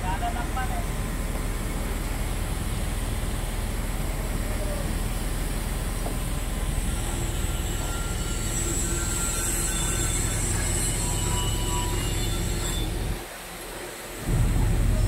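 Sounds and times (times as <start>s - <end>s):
diesel engine running under load: 0.0s - 13.5s, 14.2s - 15.0s.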